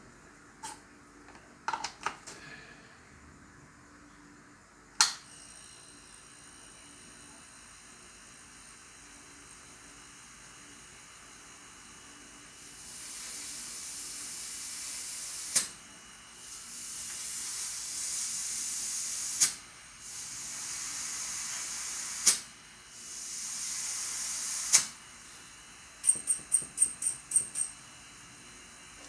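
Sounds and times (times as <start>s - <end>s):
compressed air hissing: 12.6s - 15.8s, 16.4s - 25.5s
sharp air puffs: 12.8s - 15.8s, 16.4s - 27.7s.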